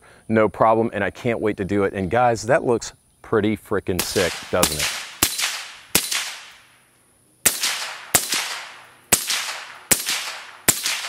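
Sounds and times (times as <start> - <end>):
suppressed pistol shots: 4.0 - 6.6, 7.4 - 11.0.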